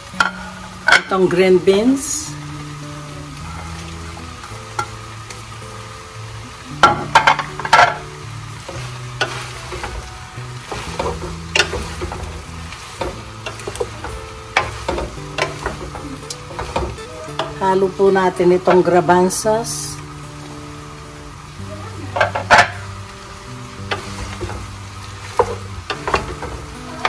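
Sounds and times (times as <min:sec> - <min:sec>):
soft background music: 0:00.0 - 0:27.0.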